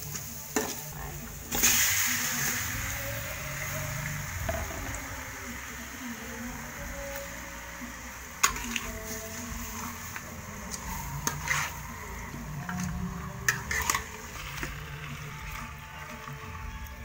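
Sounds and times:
metal spatula stirring in a pan: 6.9 - 17.0.

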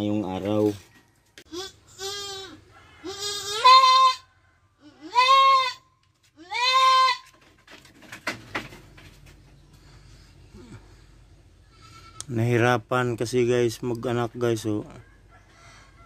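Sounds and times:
goat bleating loudly: 1.5 - 5.8, 6.4 - 7.3, 11.7 - 12.4
hooves knocking on slat floor: 7.2 - 9.6.

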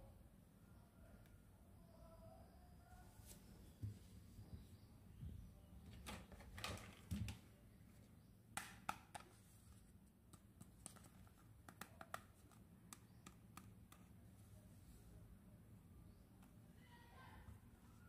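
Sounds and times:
plastic toy clicks and taps: 11.6 - 14.0.

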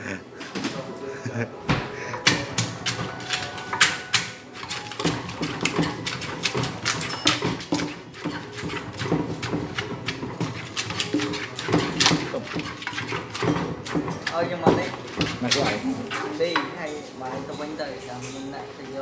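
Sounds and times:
pestle pounding in mortar: 2.2 - 16.8
spoon turning mix: 2.6 - 16.9.

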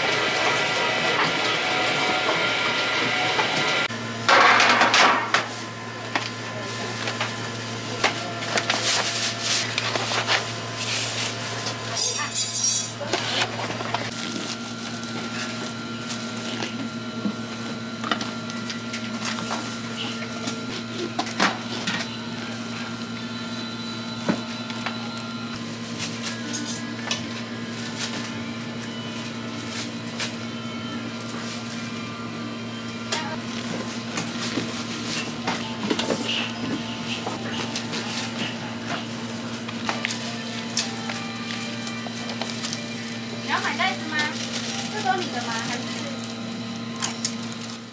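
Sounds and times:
electric machine hum: 0.0 - 47.9.

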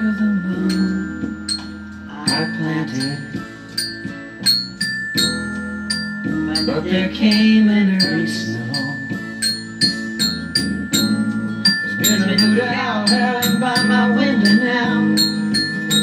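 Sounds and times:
glockenspiel notes: 0.0 - 16.0
instrumental backing track: 0.0 - 16.0.

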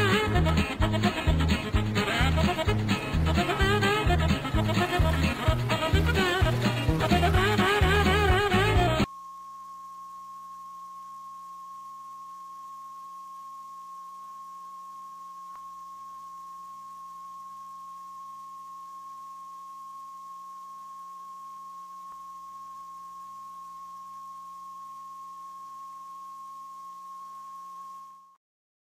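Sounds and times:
music: 0.0 - 9.1
steady test tone: 0.0 - 28.3.

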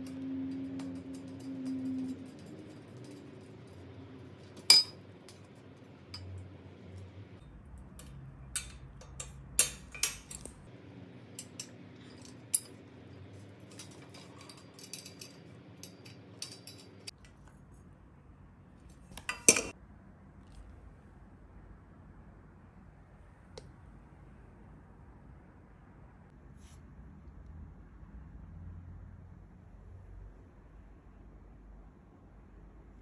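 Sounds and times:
metallic clicks of bolt and nut: 8.0 - 10.6.

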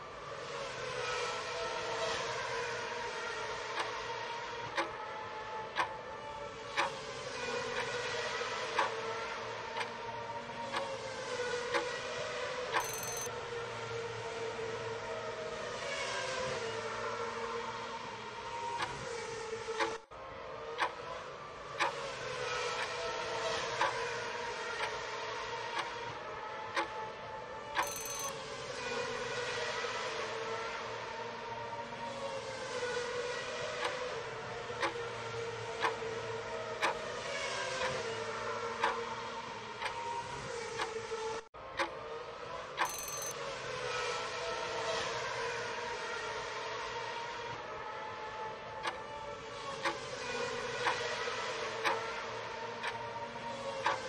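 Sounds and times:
background drone with held tone: 0.0 - 54.0
looped background drone: 12.8 - 13.3, 27.7 - 28.3
timer tick: 12.8 - 13.3, 27.8 - 28.3, 42.8 - 43.4.

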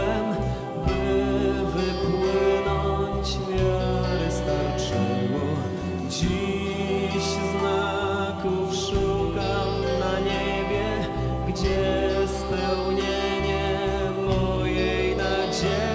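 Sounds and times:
music with singing voices: 0.0 - 15.9.

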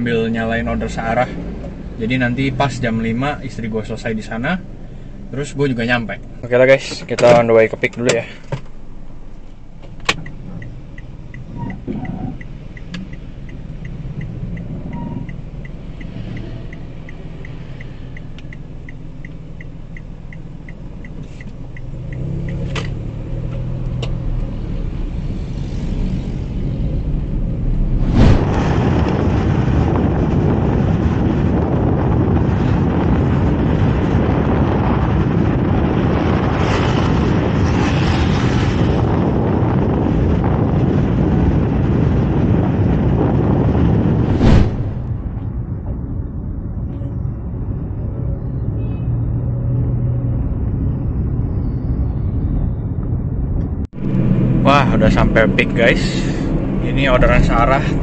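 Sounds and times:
car engine and road rumble: 0.0 - 58.0
wind and road noise rush: 0.0 - 58.0
light regular ticking: 7.8 - 24.1.

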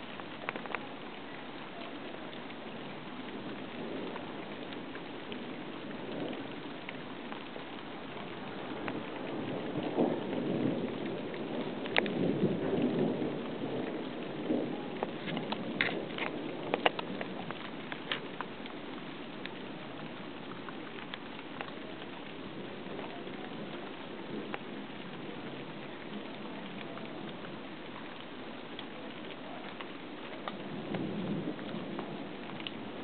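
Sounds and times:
heavy rain: 0.0 - 33.0
rolling thunder: 8.3 - 18.3, 29.4 - 33.0.

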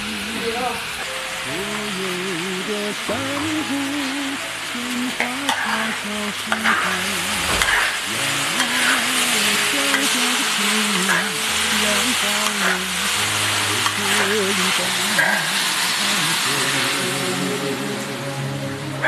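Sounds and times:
potato sizzling in a wok: 6.6 - 17.4.

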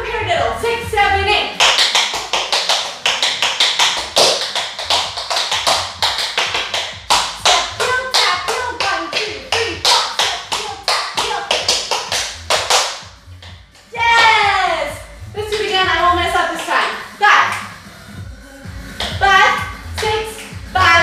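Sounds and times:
tap shoes on hard floor: 1.6 - 14.4.

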